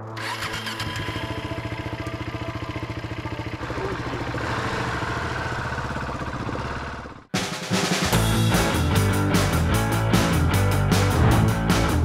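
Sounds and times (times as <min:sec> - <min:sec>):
motorcycle engine idling: 0:00.2 - 0:07.3.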